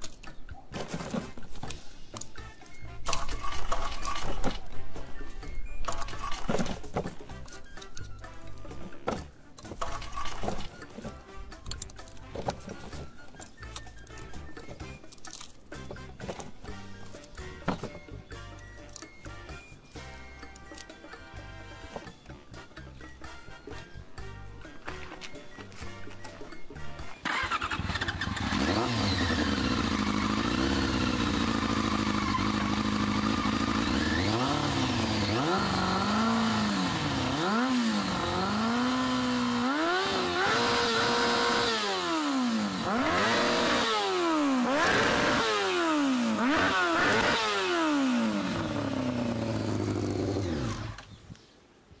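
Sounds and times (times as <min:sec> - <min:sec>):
background music: 0:00.0 - 0:32.2
motorcycle engine revving: 0:27.2 - 0:51.1.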